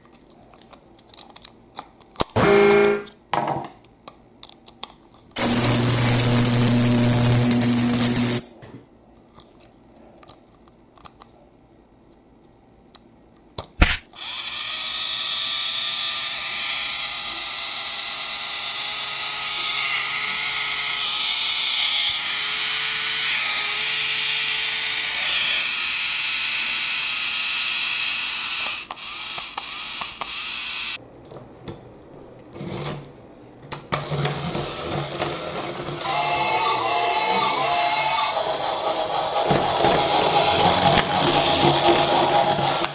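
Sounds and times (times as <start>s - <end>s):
toy train motor whirring: 14.1s - 31.0s, 34.1s - 42.9s.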